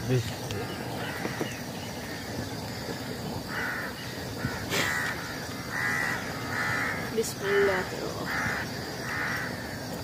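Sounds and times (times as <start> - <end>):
crow cawing: 0.7 - 9.8.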